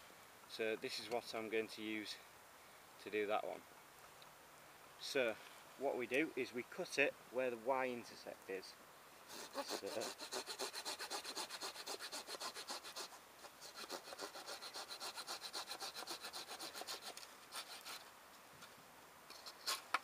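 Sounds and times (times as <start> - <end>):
hand saw cutting branch: 9.3 - 18.1, 19.3 - 20.0.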